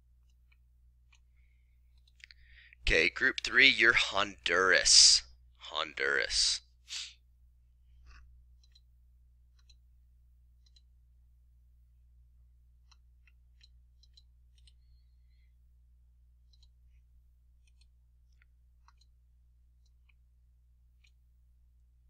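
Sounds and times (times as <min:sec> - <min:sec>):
low electrical hum: 0:00.0 - 0:22.0
computer mouse clicks: 0:08.0 - 0:08.9, 0:09.5 - 0:09.8, 0:10.6 - 0:10.9, 0:12.8 - 0:14.9, 0:16.5 - 0:17.0, 0:17.6 - 0:19.2.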